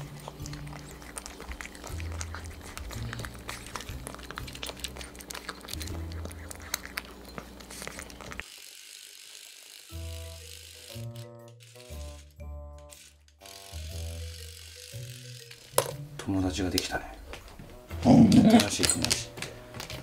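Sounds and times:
light background music: 0:00.0 - 0:08.4, 0:09.8 - 0:20.0
cats crunching dry food: 0:00.0 - 0:08.5.

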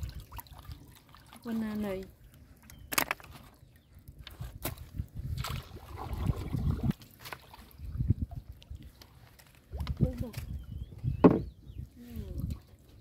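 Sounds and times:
water sloshing: 0:00.0 - 0:10.6
knocks against boat hull: 0:11.2 - 0:11.5.

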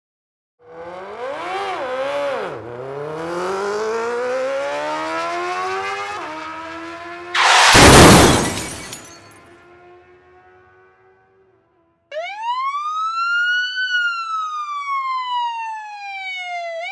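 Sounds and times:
loud crash: 0:07.4 - 0:09.4.

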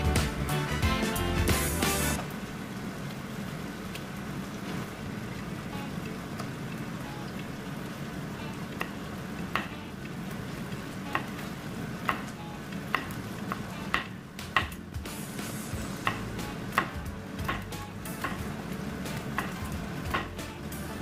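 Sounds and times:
steady hiss and hum: 0:00.0 - 0:21.0
knife tapping cutting board: 0:12.0 - 0:14.8, 0:16.0 - 0:18.5, 0:19.2 - 0:20.4.

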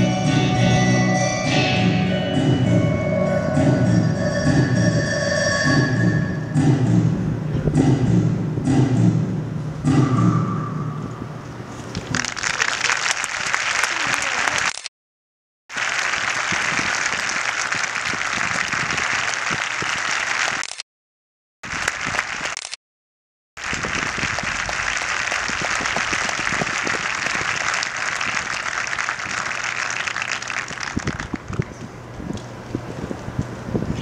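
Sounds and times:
audience applauding: 0:12.0 - 0:14.8, 0:15.7 - 0:20.8, 0:21.6 - 0:22.7, 0:23.6 - 0:31.8.

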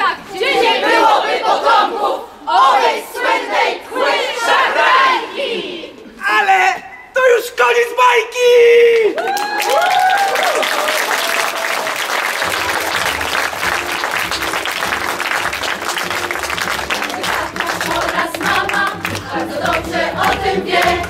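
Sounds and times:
audience applauding: 0:09.2 - 0:21.0
backing music: 0:12.1 - 0:21.0.

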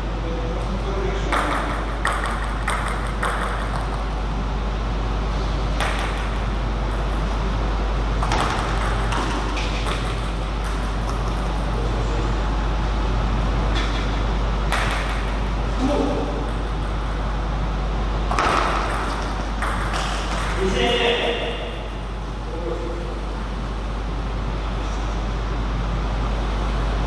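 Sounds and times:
steady low hum: 0:00.0 - 0:27.0
table tennis ball clicks: 0:14.7 - 0:15.4.

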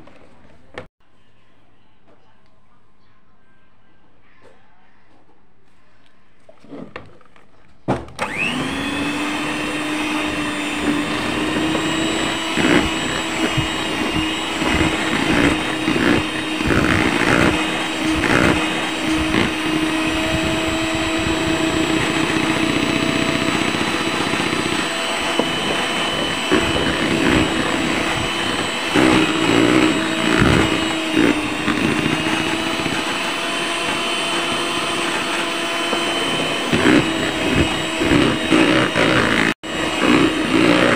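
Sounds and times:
electric hand mixer whining: 0:08.2 - 0:40.9.

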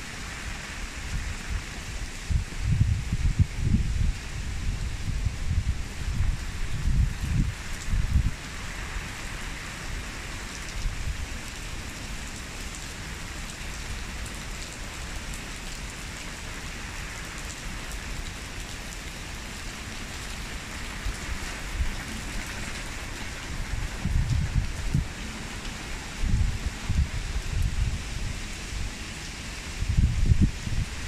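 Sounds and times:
rain pattering on shrubs and gravel: 0:00.0 - 0:31.0.

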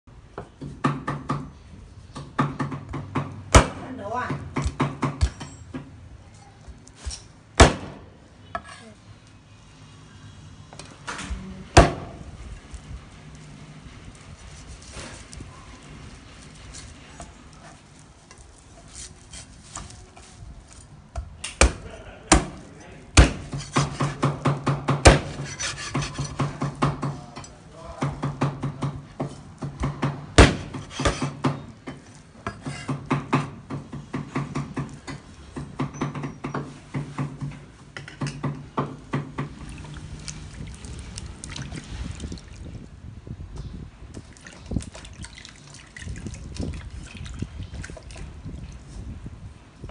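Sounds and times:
cleaver chopping ribs: 0:23.2 - 0:27.2, 0:29.6 - 0:31.6.

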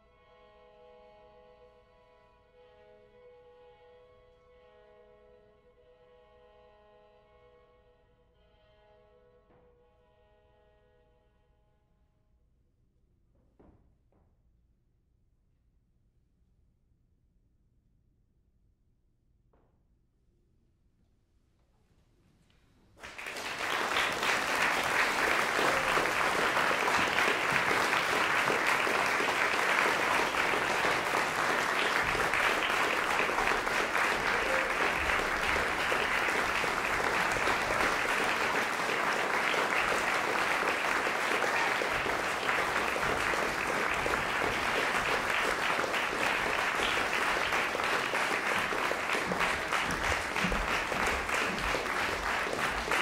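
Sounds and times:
audience applauding: 0:23.0 - 0:53.0.

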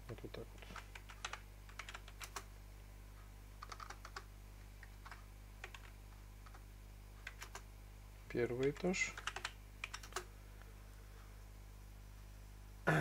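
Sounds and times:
low steady hum: 0:00.0 - 0:13.0
keyboard key clicks: 0:08.6 - 0:10.3.

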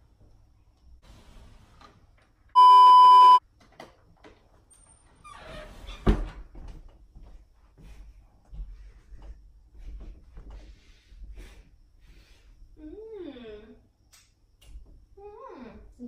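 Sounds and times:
high-pitched beep: 0:02.6 - 0:03.4.

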